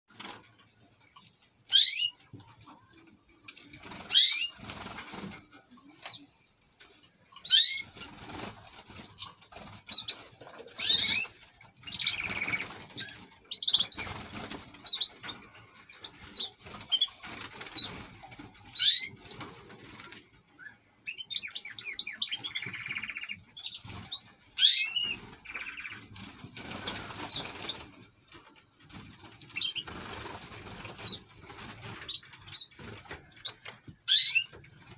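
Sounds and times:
birds scuffling in cage: 0.1s - 20.5s, 21.2s - 34.9s
finches chirping: 1.6s - 2.2s, 3.9s - 4.6s, 7.4s - 8.2s, 9.0s - 18.0s, 18.7s - 19.3s, 20.6s - 27.8s, 31.9s - 34.6s
bird wings fluttering: 2.4s - 6.2s, 7.7s - 20.3s, 22.4s - 34.9s
rattling bird trill: 4.0s - 4.6s, 10.8s - 14.2s, 18.7s - 19.3s, 33.4s - 34.5s.

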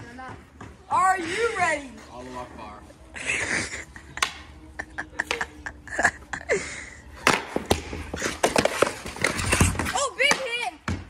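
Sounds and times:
skate blades scraping on ice: 7.2s - 10.7s
hockey sticks clacking: 7.2s - 11.0s.

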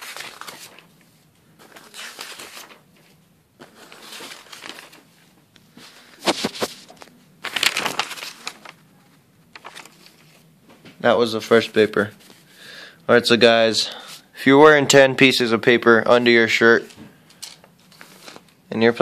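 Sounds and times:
paper rustling and crinkling: 0.0s - 10.5s, 16.8s - 18.6s.

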